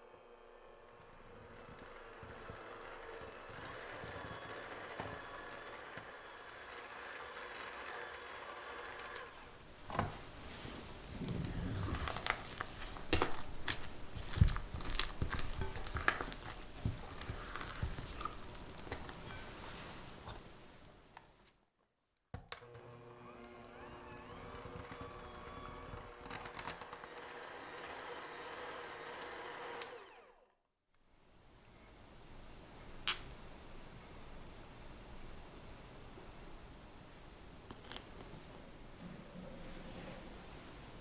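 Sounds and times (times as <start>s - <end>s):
electric hand mixer running: 0.0s - 9.5s, 22.6s - 30.6s.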